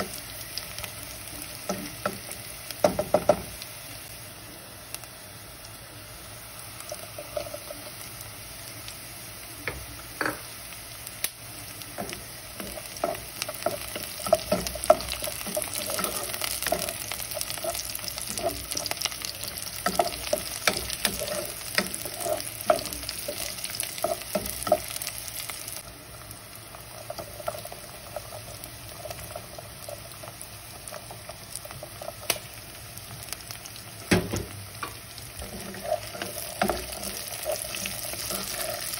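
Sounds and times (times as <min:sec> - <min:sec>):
onions sizzling in oil: 0:00.0 - 0:38.9
wooden spoon scraping pot: 0:12.0 - 0:24.9, 0:35.4 - 0:38.9.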